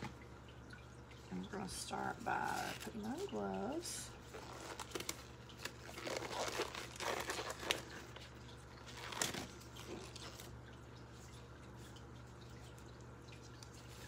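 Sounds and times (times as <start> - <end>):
gloves crinkling and rustling: 2.2 - 10.6.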